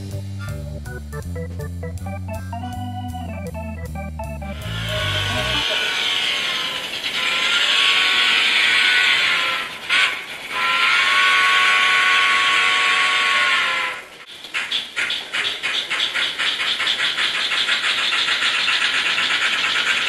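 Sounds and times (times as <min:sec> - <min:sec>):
model train steam whistle: 0:04.5 - 0:14.2.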